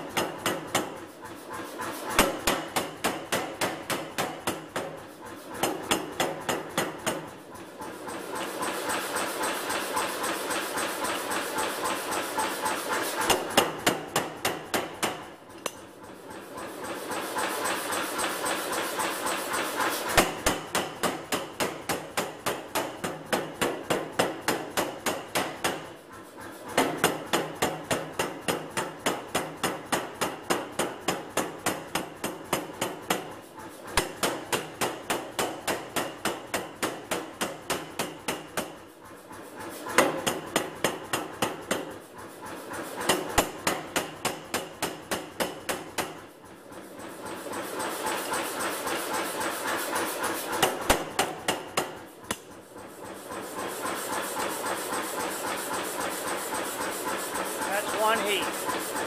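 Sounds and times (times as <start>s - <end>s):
power hammer striking hot steel: 2.2s - 5.0s, 13.2s - 15.3s, 20.1s - 25.9s, 26.8s - 33.3s, 50.6s - 52.4s.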